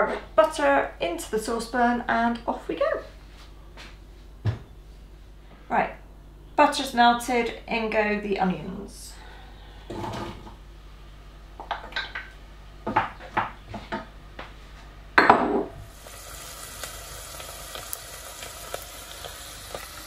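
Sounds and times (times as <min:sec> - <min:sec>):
onions sizzling in butter: 0:15.8 - 0:20.0.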